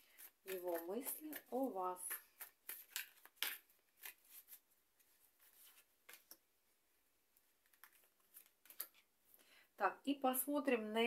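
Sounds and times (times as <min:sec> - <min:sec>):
cards flicking and rustling: 0:00.0 - 0:06.4, 0:07.6 - 0:09.1.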